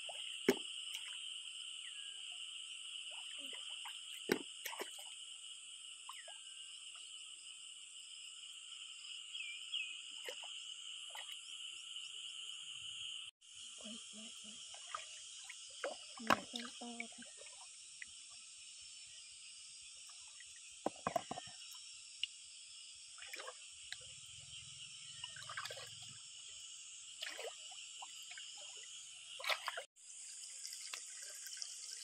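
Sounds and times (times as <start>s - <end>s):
light water splashes: 3.0s - 5.2s, 10.2s - 11.5s, 13.9s - 18.2s, 23.2s - 24.1s, 25.2s - 26.2s, 27.1s - 32.0s.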